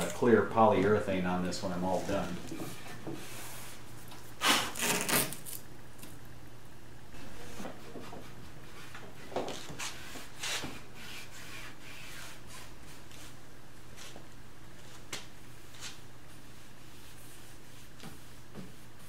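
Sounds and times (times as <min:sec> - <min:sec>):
rag rubbing wood: 0:07.4 - 0:13.3.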